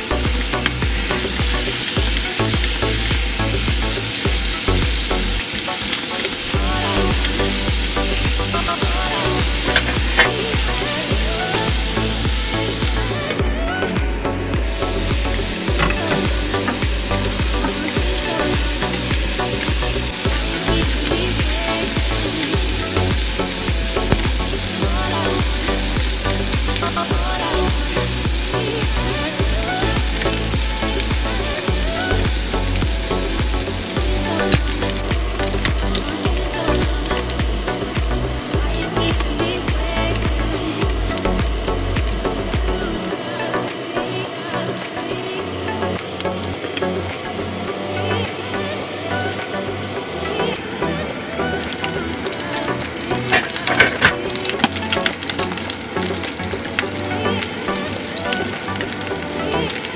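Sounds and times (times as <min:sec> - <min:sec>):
music with regular beat: 0:00.0 - 0:05.6, 0:06.5 - 0:43.9
meat sizzling in frying pan: 0:00.1 - 0:13.4, 0:14.6 - 0:46.5, 0:51.8 - 0:59.9.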